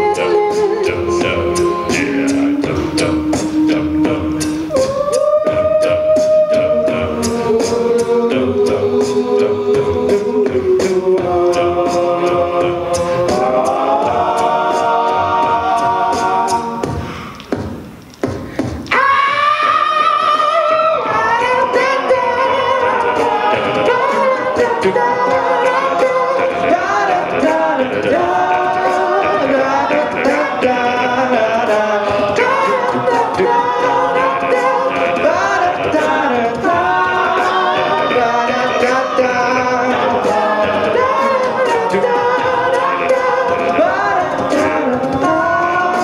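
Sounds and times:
male a cappella group singing: 0.0 - 17.1, 18.9 - 46.0
beatboxing ticks: 0.0 - 22.6.

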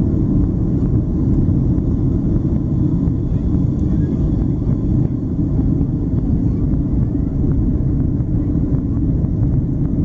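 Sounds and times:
jet engines roaring in cabin: 0.0 - 10.0.

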